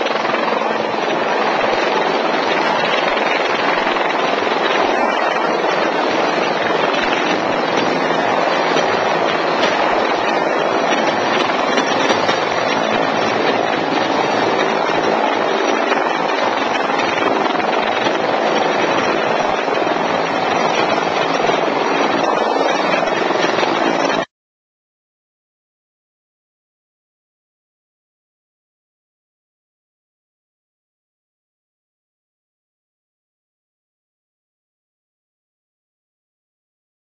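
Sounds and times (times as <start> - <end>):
helicopter turbine and rotor: 0.0 - 24.3.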